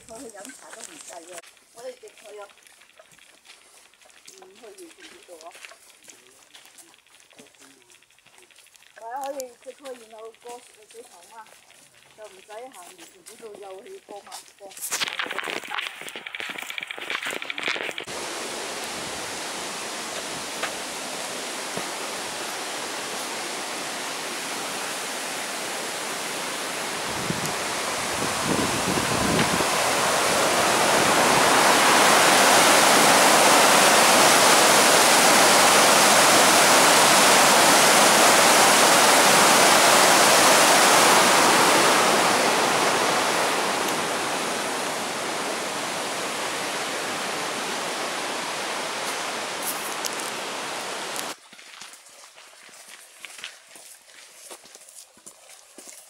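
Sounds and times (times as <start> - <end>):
water rushing down spillway: 14.9 - 53.4.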